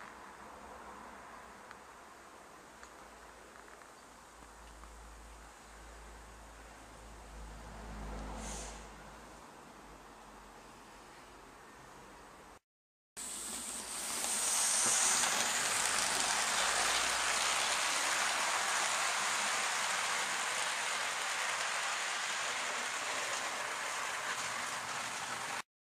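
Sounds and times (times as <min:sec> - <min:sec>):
steady rushing hiss: 0:13.2 - 0:25.6.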